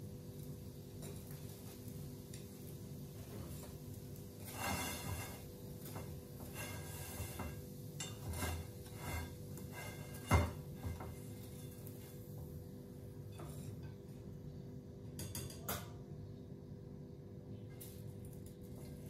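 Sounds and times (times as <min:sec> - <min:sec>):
scraping and rustling: 0:03.2 - 0:12.4.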